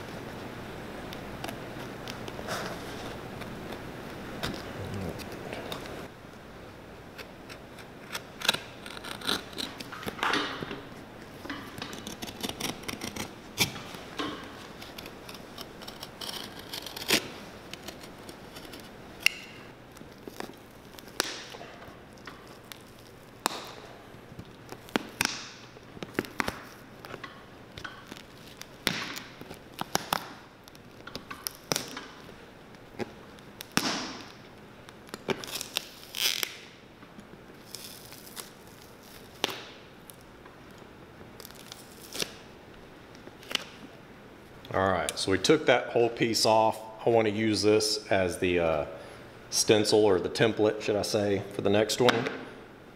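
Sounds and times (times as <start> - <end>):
hand tools prying leather sole: 11.5 - 19.5.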